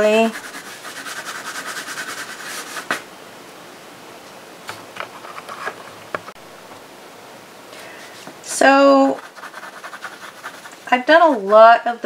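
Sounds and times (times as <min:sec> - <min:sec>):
pencil scratching on paper: 0:00.0 - 0:03.0, 0:09.1 - 0:11.7.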